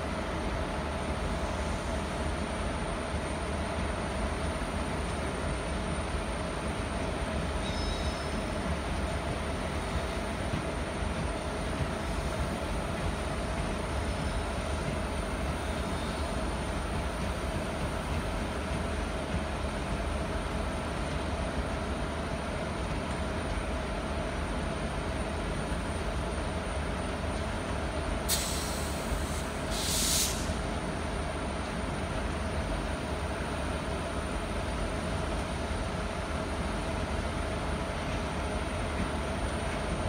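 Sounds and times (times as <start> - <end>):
train wheels rumbling on rails: 0.0 - 40.0
air brakes hissing: 28.3 - 30.6.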